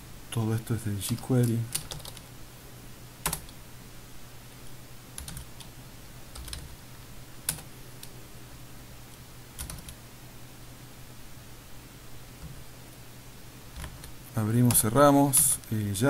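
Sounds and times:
keyboard typing: 0:01.1 - 0:02.3, 0:03.2 - 0:03.6, 0:05.2 - 0:05.7, 0:06.3 - 0:06.8, 0:07.4 - 0:08.1, 0:09.6 - 0:10.0, 0:13.7 - 0:15.6.

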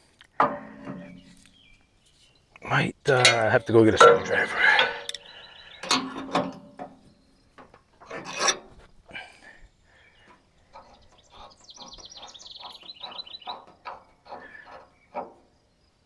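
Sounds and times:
metal clinks and knocks: 0:00.3 - 0:01.4, 0:03.1 - 0:08.9, 0:10.3 - 0:15.7
bird trilling: 0:04.2 - 0:05.9, 0:10.7 - 0:15.2.

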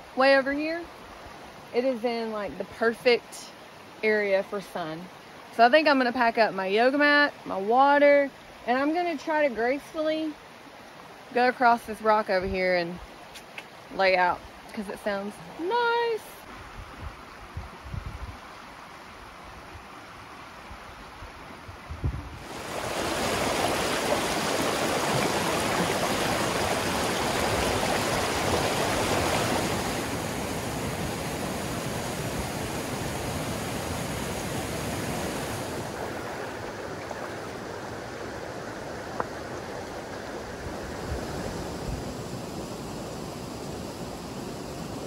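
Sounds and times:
creek water rushing over waterfalls: 0:22.3 - 0:45.0.

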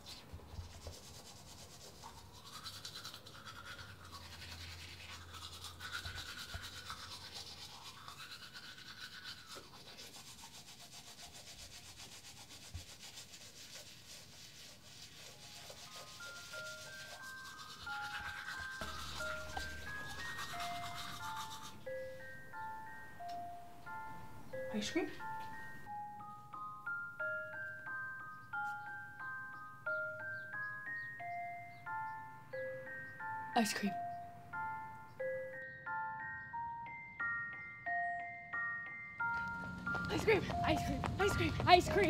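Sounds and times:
toothbrush scrubbing teeth: 0:00.0 - 0:21.9
ice cream truck jingle: 0:16.1 - 0:42.0.

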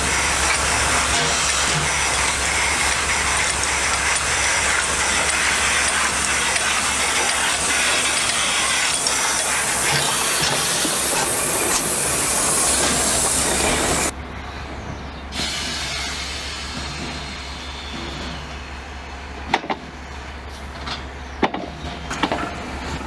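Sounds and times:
steam locomotive hissing: 0:00.0 - 0:14.1, 0:15.3 - 0:19.4.

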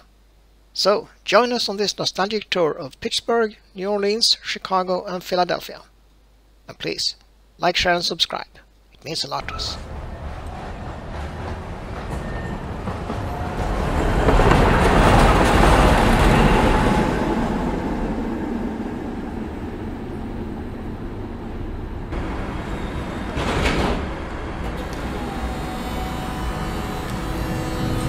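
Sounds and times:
streetcar motor and wheels: 0:09.4 - 0:28.0.

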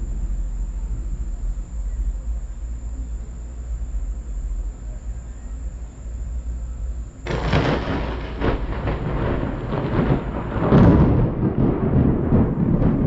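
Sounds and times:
thunder rumbling: 0:00.0 - 0:04.9, 0:06.8 - 0:13.0
high steady whine: 0:00.0 - 0:13.0.

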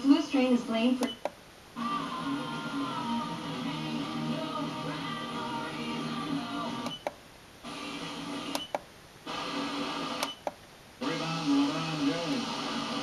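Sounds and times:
radio station audio snatches: 0:01.8 - 0:13.0
tuner clicks: 0:06.8 - 0:07.2, 0:08.5 - 0:08.9, 0:10.2 - 0:10.6.

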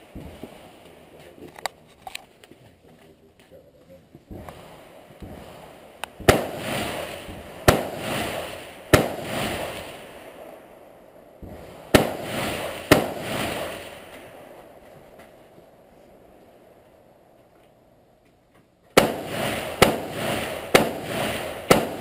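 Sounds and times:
rifle shots echoing: 0:04.3 - 0:14.9, 0:19.0 - 0:22.0.

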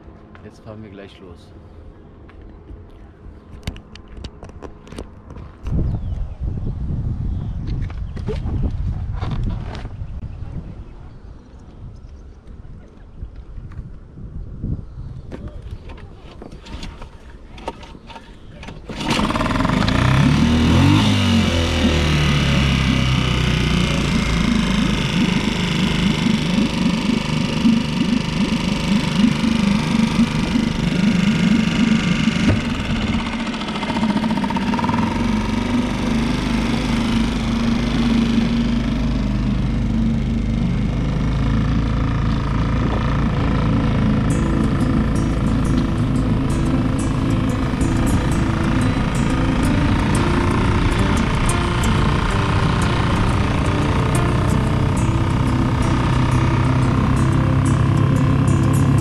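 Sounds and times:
outboard motor starting and running: 0:15.6 - 0:59.0
deep low rumble: 0:19.3 - 0:59.0.

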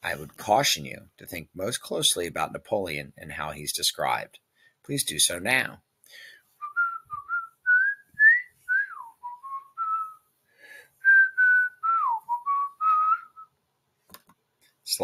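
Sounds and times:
person whistling a tune: 0:06.6 - 0:10.2, 0:11.0 - 0:13.5.

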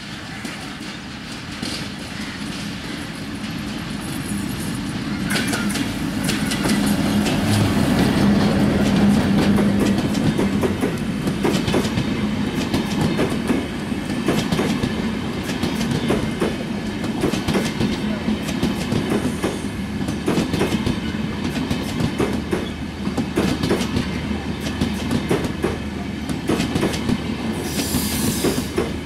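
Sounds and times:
diesel locomotive engine hum: 0:00.0 - 0:29.0
train wheels clickety-clack: 0:00.0 - 0:29.0.

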